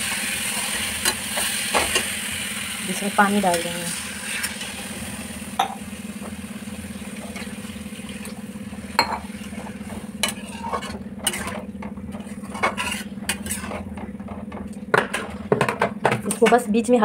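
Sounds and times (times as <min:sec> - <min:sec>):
metal spatula scraping pan: 0:09.5 - 0:14.0.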